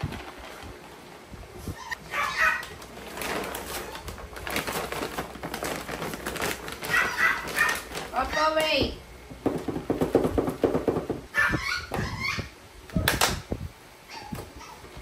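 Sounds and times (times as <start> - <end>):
dog crying high-pitched: 1.7 - 2.7, 6.8 - 7.9, 11.3 - 13.1, 14.1 - 14.9.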